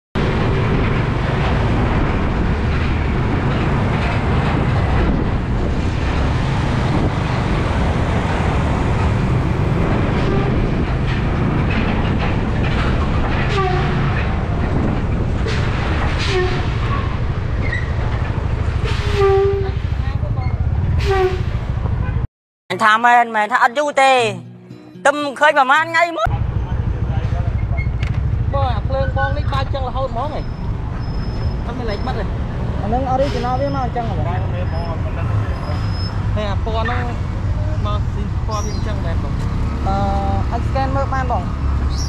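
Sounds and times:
wind rumble on microphone: 0:00.2 - 0:22.2
motorcycle engine: 0:26.3 - 0:33.0.

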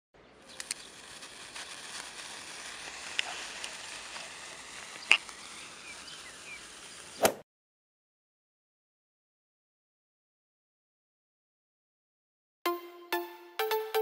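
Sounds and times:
sparkler crackles: 0:00.4 - 0:07.2
sparklers fizzing: 0:00.4 - 0:07.2.

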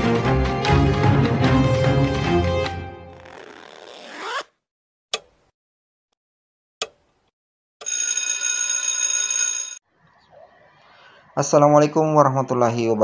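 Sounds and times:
electronic ringing tone: 0:07.8 - 0:09.8.

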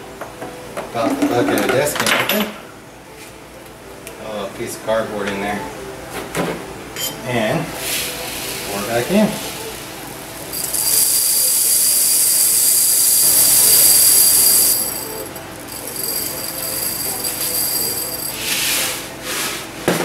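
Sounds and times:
beads pouring through a funnel: 0:08.2 - 0:18.6.

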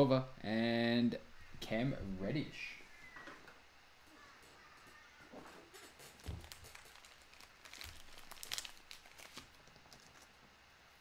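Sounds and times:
cards and foil wrapper crinkling: 0:05.7 - 0:10.4.

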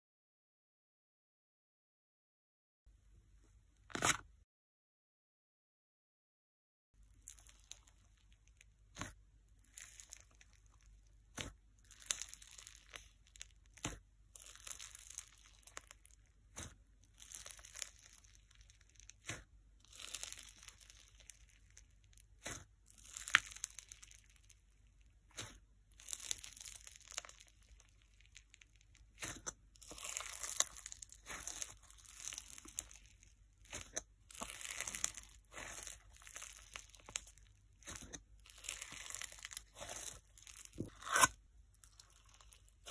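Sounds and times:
slime crunching and crackling: 0:07.0 - 0:42.9
slime popping: 0:25.3 - 0:42.9.

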